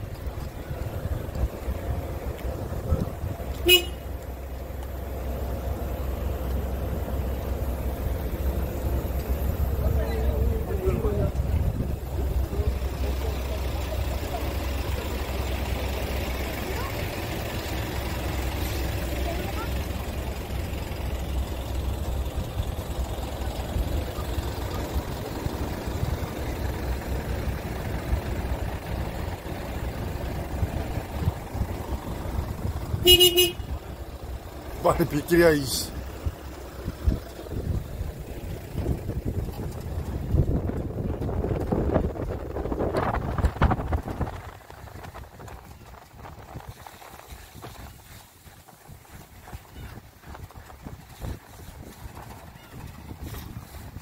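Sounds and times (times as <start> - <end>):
outdoor noise: 0.0 - 54.0
road traffic rumble: 0.0 - 54.0
vehicle horn toot: 3.5 - 4.2, 33.0 - 33.8.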